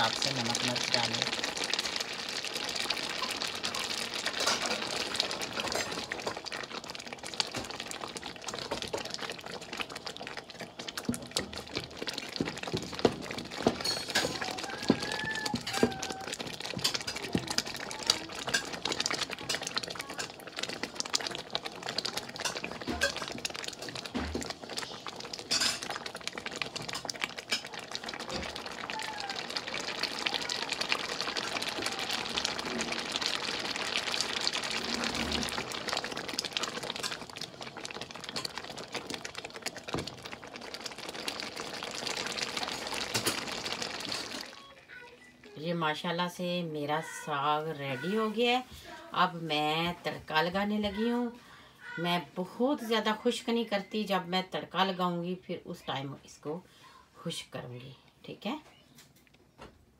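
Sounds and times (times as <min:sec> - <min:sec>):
thick greens bubbling and spattering: 0:00.0 - 0:51.6
wooden spoon knocking pot: 0:11.0 - 0:17.8.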